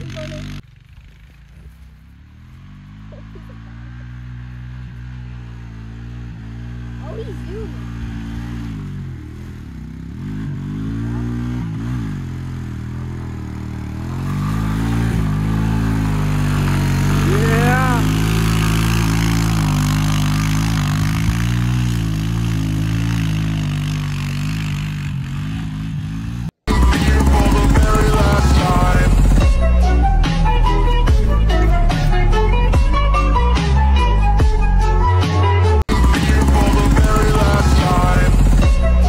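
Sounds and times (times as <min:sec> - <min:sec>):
atv engine driving through mud: 0:00.0 - 0:32.2, 0:35.9 - 0:39.0.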